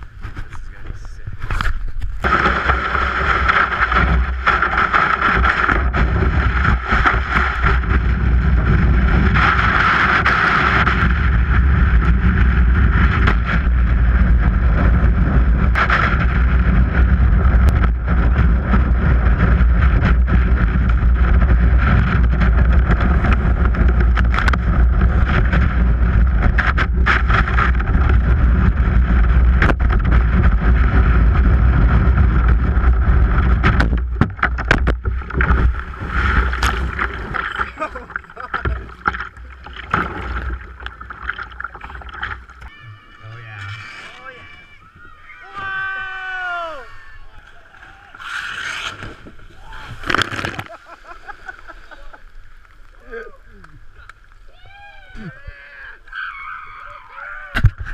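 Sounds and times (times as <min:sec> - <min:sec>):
wind buffeting microphone: 0:00.0 - 0:42.7
hull sliding on concrete: 0:00.0 - 0:46.2, 0:47.4 - 0:52.7
rush of shallow water: 0:00.0 - 0:57.9
water splashing: 0:00.0 - 0:57.9.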